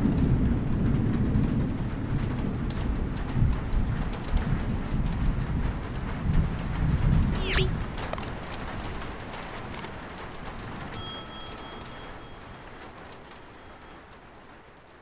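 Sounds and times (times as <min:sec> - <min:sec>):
rain-like ambient noise: 0:00.0 - 0:15.0
light ticks: 0:09.7 - 0:10.0.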